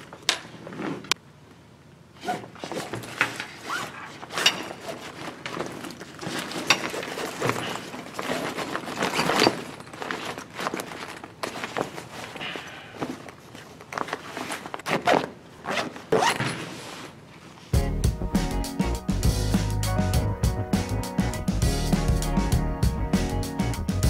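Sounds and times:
nylon bag rustling and crinkling: 2.2s - 17.7s.

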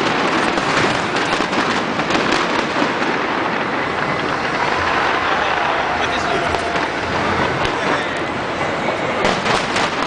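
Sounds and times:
fireworks crackling: 0.0s - 10.0s.

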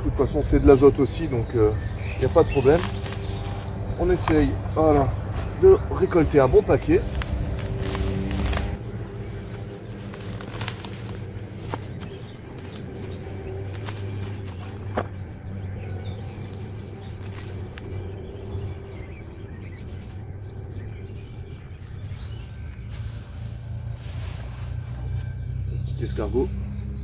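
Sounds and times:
steady low rumble: 0.0s - 26.0s
plant stalks rustling and snapping: 0.2s - 25.6s.

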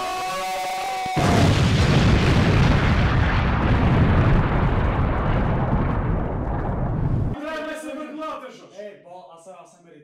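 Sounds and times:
explosion with rumbling blast: 1.2s - 7.4s.

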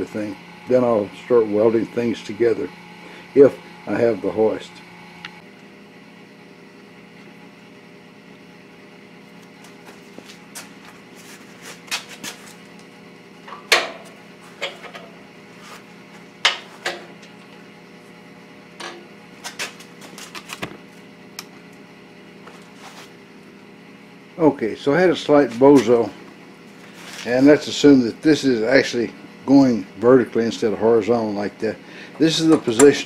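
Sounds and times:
steady low hum: 0.0s - 33.0s
metal clanks and knocks: 13.5s - 15.1s.

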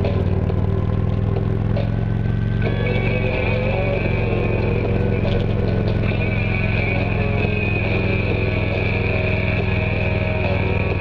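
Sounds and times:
motorcycle engine running: 0.0s - 11.0s
music from small speakers: 2.6s - 11.0s.

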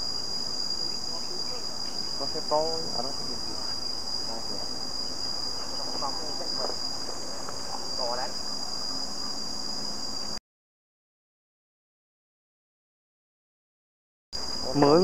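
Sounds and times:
high-pitched insect drone: 0.0s - 10.4s, 14.4s - 15.0s
faint voices: 0.8s - 4.8s.

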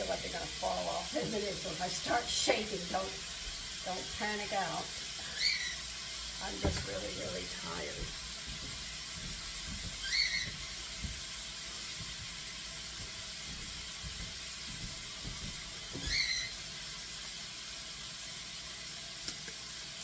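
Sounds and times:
meat sizzling in a frying pan: 0.0s - 20.0s.

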